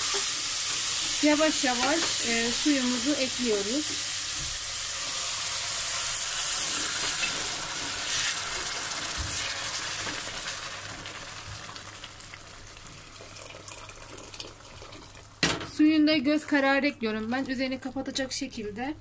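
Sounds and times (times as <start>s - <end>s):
sizzling hiss of hot oil: 0.0s - 12.0s
water poured into pot: 5.0s - 15.4s.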